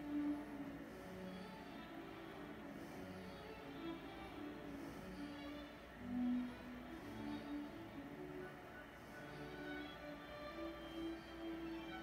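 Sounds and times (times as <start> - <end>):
quiet slow background music: 0.0 - 12.0.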